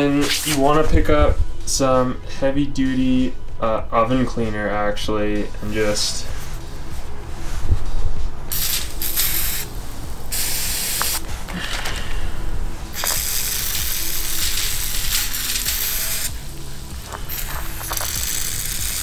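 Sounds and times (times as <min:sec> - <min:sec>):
aerosol can spraying: 0:08.5 - 0:09.7, 0:10.3 - 0:11.2, 0:12.9 - 0:16.4, 0:17.0 - 0:19.0.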